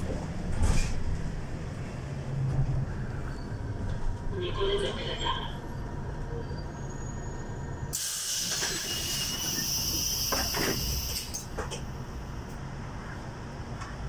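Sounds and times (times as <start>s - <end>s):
bus door air hiss: 7.9s - 11.4s.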